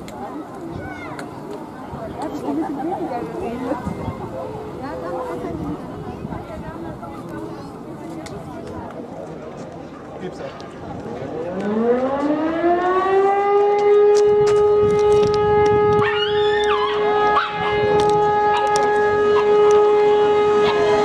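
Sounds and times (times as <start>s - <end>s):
siren wailing: 11.3s - 21.0s.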